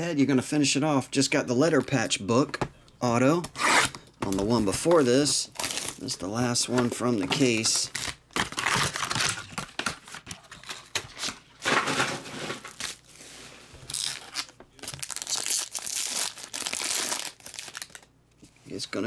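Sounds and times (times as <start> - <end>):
plastic wrap crinkling: 4.4 - 18.1
foil pack being torn open: 13.9 - 18.1.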